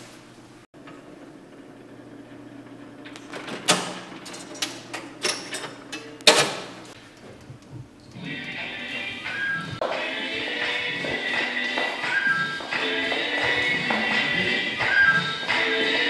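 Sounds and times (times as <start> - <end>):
motor hum: 0.3 - 9.8
mechanism clicks and clunks: 2.7 - 8.2.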